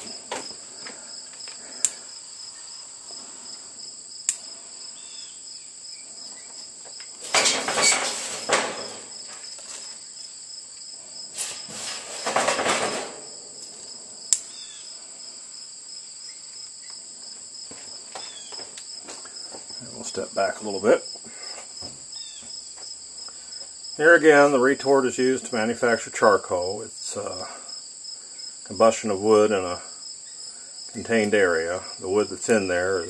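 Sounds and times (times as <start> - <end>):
insects chirring: 0.0 - 33.0
sharp clicks: 4.2 - 4.4, 14.3 - 14.5
kindling rustling and clattering: 6.3 - 10.1, 11.3 - 13.9.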